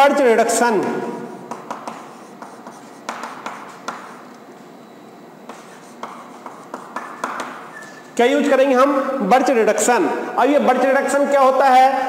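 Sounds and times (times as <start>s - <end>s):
chalk scratching on blackboard: 1.5s - 4.3s, 5.5s - 8.0s.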